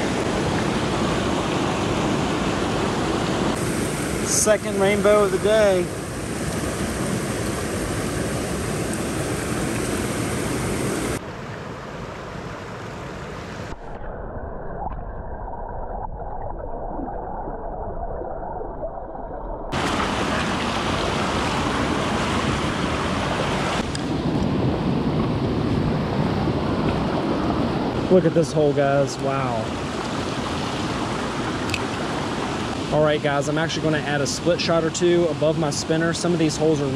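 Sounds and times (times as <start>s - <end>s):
creek rushing: 0.0s - 13.8s, 19.7s - 36.9s
muffled creek heard underwater: 12.9s - 27.9s.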